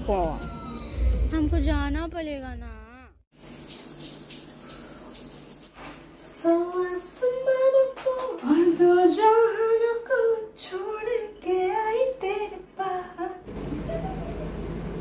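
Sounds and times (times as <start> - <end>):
woman singing unaccompanied: 6.2 - 13.5.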